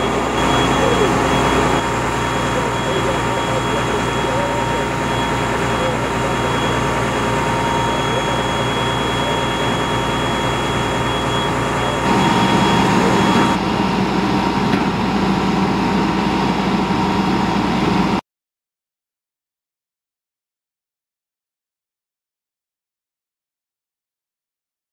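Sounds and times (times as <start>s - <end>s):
diesel engine and pump hum: 0.0s - 18.2s
pump whine: 0.0s - 18.2s.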